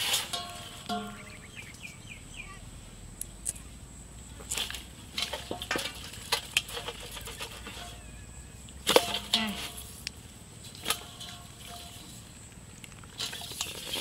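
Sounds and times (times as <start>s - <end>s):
fish splashing in a steel bowl: 4.6s - 10.0s, 10.7s - 12.4s, 13.1s - 14.0s.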